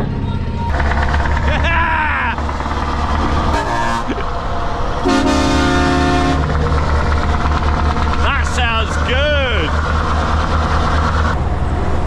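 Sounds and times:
diesel engine droning: 0.0s - 12.0s
truck horn blasts: 3.4s - 4.2s, 5.0s - 6.6s.

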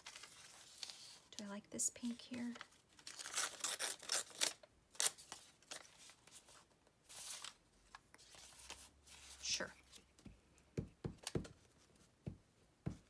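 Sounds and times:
paper rustling and crinkling: 0.0s - 1.4s, 2.0s - 10.2s.

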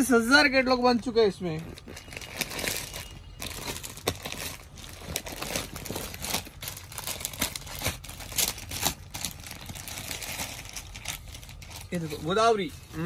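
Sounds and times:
glossy pages crinkling: 1.4s - 13.0s.

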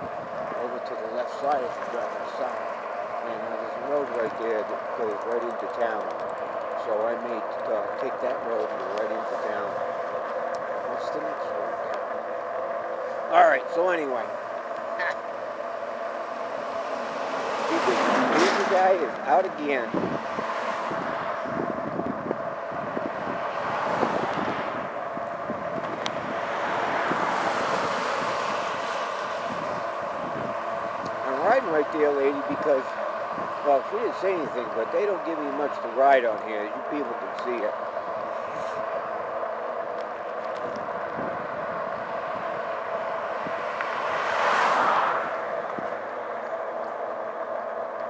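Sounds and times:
wind rushing over microphone: 0.0s - 0.7s, 16.4s - 34.7s, 40.4s - 46.8s
bike riding on asphalt: 0.0s - 48.0s
car passing: 0.0s - 48.0s.

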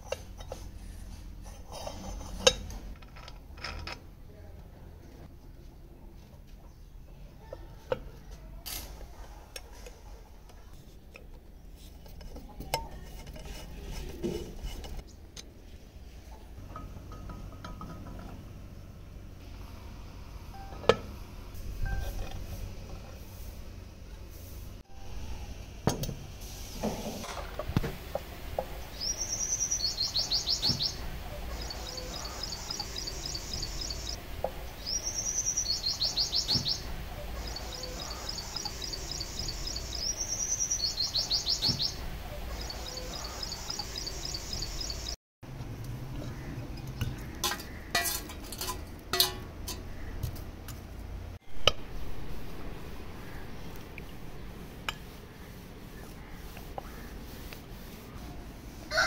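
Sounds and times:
songbird whistle and trill: 28.9s - 34.2s, 34.8s - 45.2s
charcoal and pliers clinking: 47.2s - 49.9s.

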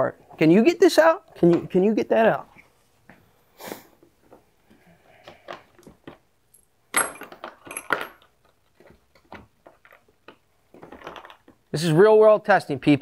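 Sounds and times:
metal bits clattering: 6.0s - 11.6s.

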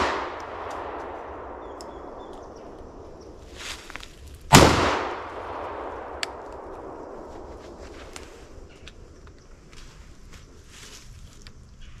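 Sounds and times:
shotgun shot: 0.0s - 1.5s, 4.5s - 6.2s.

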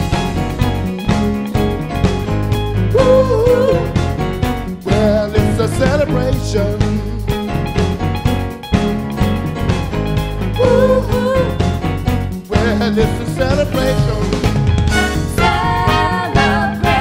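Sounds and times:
wavering lead melody: 0.0s - 5.4s, 6.4s - 12.5s
rock and roll band playing live: 0.0s - 17.0s
steady drum beat: 0.0s - 17.0s.

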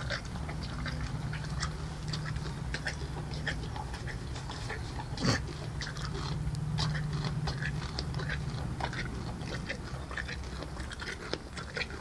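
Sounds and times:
pony chewing: 0.0s - 12.0s.

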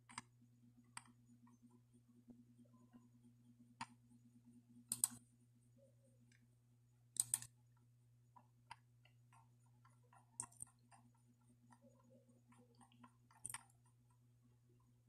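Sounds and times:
faint electrical hum: 0.0s - 15.0s
sharp clicks: 4.9s - 5.2s, 7.2s - 7.5s.

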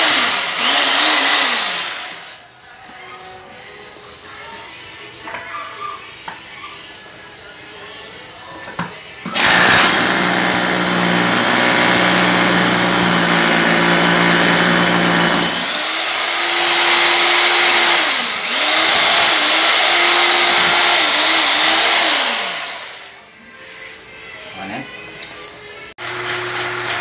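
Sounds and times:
electric drill boring into concrete: 0.0s - 2.4s, 9.3s - 23.1s.

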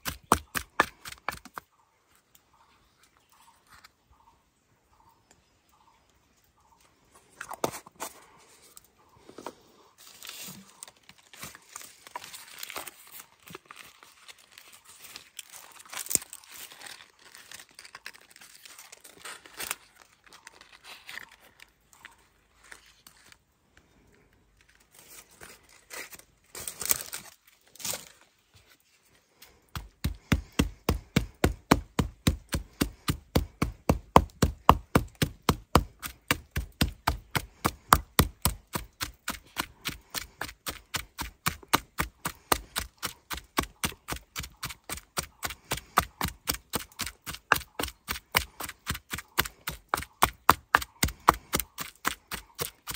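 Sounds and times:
food rustling and crinkling: 7.3s - 23.5s.

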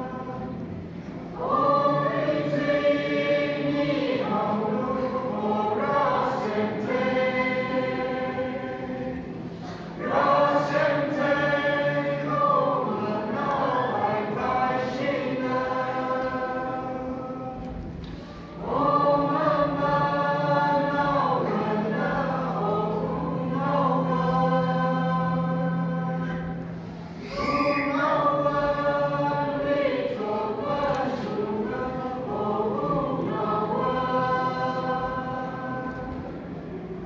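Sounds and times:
mixed choir singing: 0.0s - 37.0s
low held tone: 12.0s - 19.9s, 20.6s - 37.0s.

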